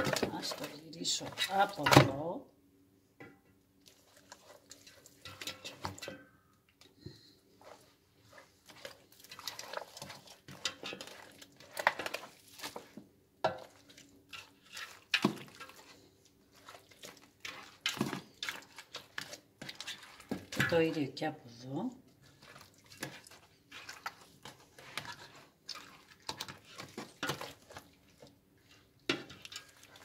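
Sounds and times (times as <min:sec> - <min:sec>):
wet squelching of meat: 0:03.8 - 0:06.0, 0:07.6 - 0:13.0, 0:13.6 - 0:21.0, 0:21.6 - 0:30.0.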